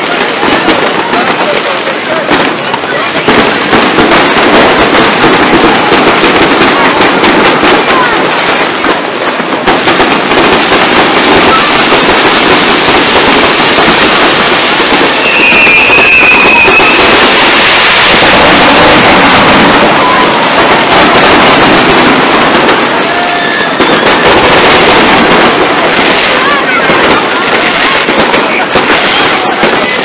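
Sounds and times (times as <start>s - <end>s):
fireworks crackling and banging: 0.0s - 30.0s
high steady whistle: 15.2s - 19.4s.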